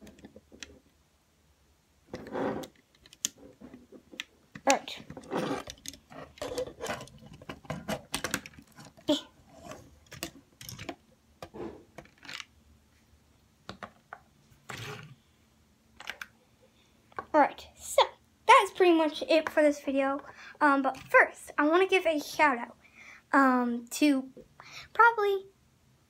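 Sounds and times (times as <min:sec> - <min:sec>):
plastic bricks clicking: 0:04.1 - 0:09.0, 0:10.0 - 0:11.0, 0:12.0 - 0:12.5.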